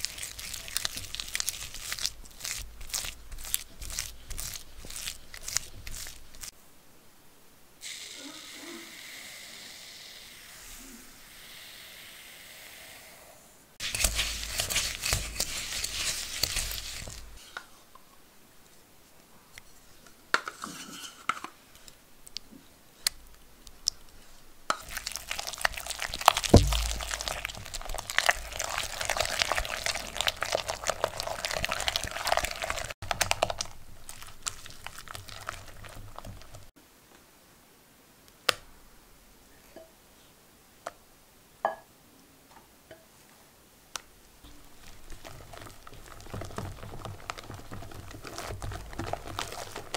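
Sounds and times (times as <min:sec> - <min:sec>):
sugar pouring: 0:00.0 - 0:06.5, 0:13.8 - 0:17.4, 0:24.7 - 0:36.7, 0:44.5 - 0:49.9
whisk scraping a glass bowl: 0:13.8 - 0:17.4.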